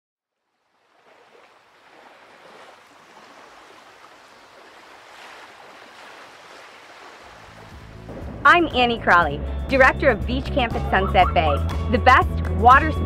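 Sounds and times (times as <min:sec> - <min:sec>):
ocean waves rushing: 0:00.6 - 0:09.4.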